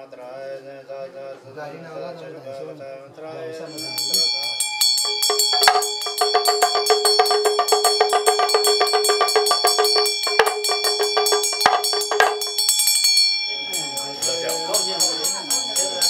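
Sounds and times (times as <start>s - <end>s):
hand bell ringing: 3.7s - 16.0s
hand drum rattling: 3.7s - 16.0s
loud knocks: 5.0s - 13.0s.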